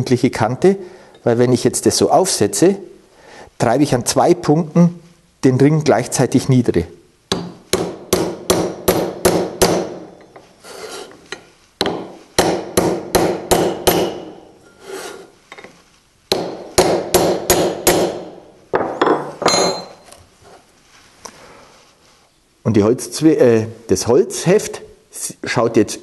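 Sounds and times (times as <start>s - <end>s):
hammer striking steel bar: 7.3s - 10.1s, 11.8s - 14.4s, 16.3s - 18.3s.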